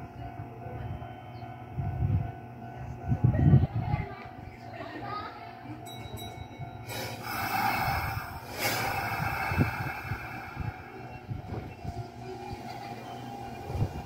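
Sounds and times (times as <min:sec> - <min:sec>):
electric train rolling slowly: 0:00.0 - 0:14.0
train hiss: 0:06.8 - 0:12.7.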